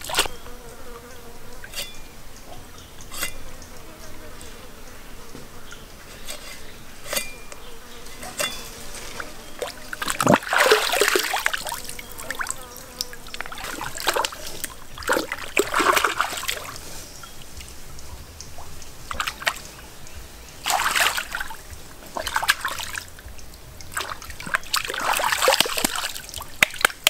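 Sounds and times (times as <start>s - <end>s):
water splashing and sloshing: 0.0s - 0.4s, 5.3s - 27.0s
faint insect buzz: 0.0s - 18.0s.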